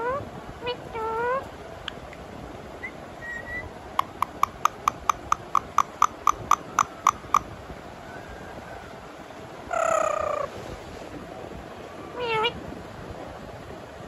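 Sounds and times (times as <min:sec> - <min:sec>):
faint short whistles: 0:02.8 - 0:03.7
parakeet clicking: 0:04.0 - 0:07.5.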